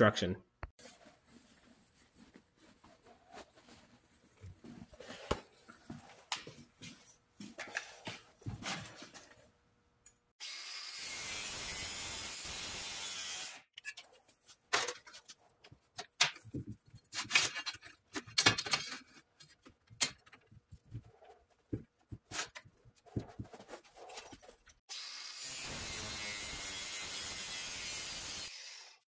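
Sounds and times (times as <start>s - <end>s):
angle grinder cutting steel: 10.4s - 13.6s, 24.9s - 29.0s.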